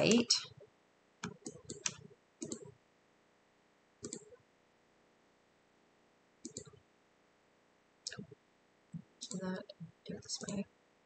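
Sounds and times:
computer mouse clicks: 1.2s - 2.8s, 4.0s - 4.4s, 6.4s - 6.8s, 9.0s - 9.5s.

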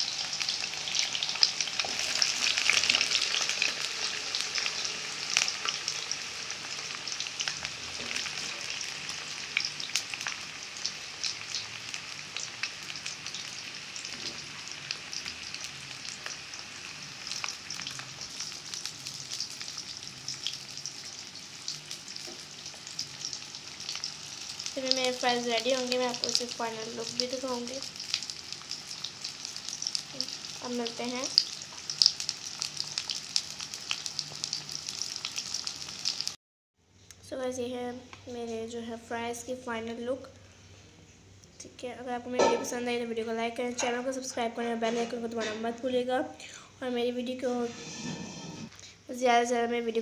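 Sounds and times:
potato sticks deep-frying in oil: 0.0s - 36.4s.

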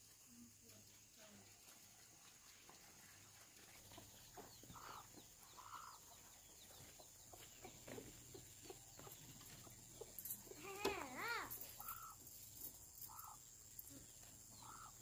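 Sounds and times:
chickens clucking: 2.4s - 12.4s, 13.0s - 15.0s.

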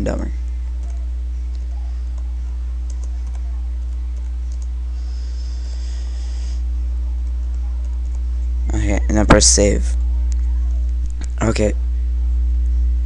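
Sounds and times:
low electrical hum: 0.0s - 13.0s
keyboard typing: 0.7s - 4.7s.

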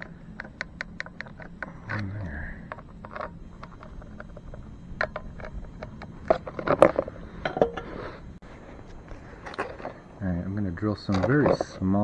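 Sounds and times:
handling clicks and knocks: 9.4s - 11.9s.

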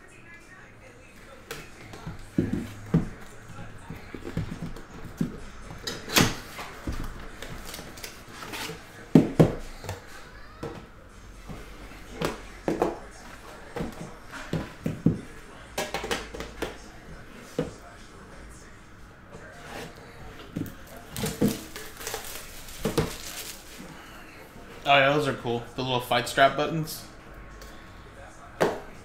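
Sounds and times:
cardboard and tin rustling: 19.5s - 24.1s.

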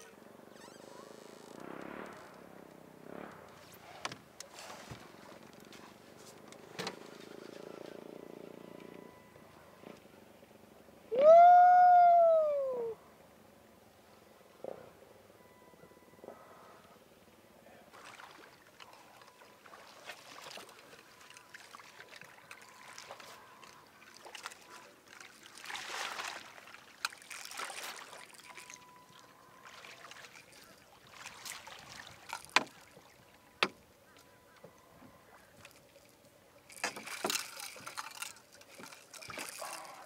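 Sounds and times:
water splashing: 17.9s - 33.6s, 35.3s - 40.0s.

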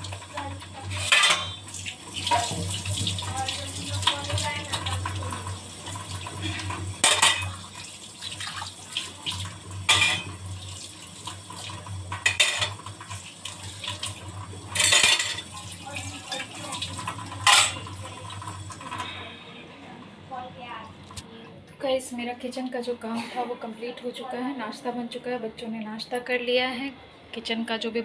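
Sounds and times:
dishes clattering: 0.1s - 3.4s, 4.7s - 7.8s, 9.8s - 10.4s, 12.1s - 13.2s, 14.7s - 19.1s.

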